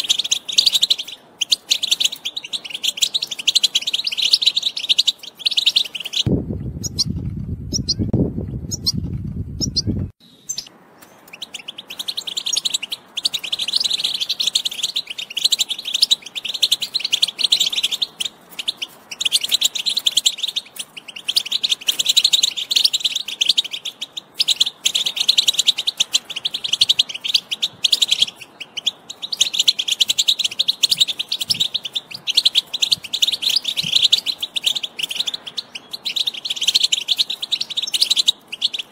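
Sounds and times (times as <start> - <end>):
goldfinch twittering song: 0.0 - 38.9
low rumble: 6.3 - 10.2.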